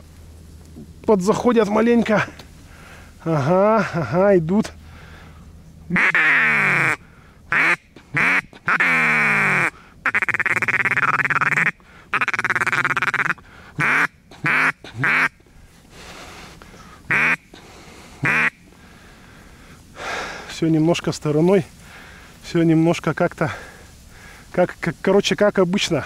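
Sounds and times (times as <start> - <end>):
duck call quacks: 5.9 - 15.4, 17.1 - 17.6, 18.2 - 18.6
long buzzy duck call: 5.9 - 15.4, 17.1 - 17.6, 18.2 - 18.6.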